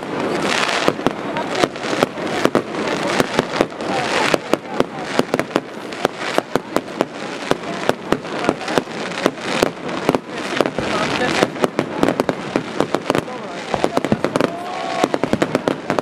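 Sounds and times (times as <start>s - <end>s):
continuous rushing noise: 0.0s - 16.0s
fireworks bursting with sharp bangs: 0.0s - 16.0s.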